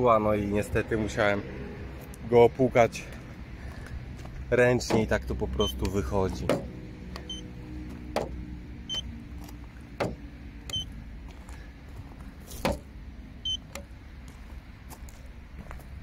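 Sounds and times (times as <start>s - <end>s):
low steady rumble: 0.0s - 16.0s
sharp knocks: 6.4s - 6.8s, 8.1s - 8.4s, 10.0s - 10.3s, 12.6s - 12.9s.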